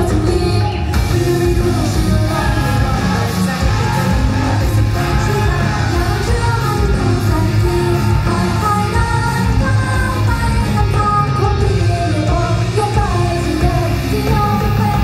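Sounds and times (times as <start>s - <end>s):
live band music: 0.0s - 15.0s
person singing: 0.0s - 15.0s.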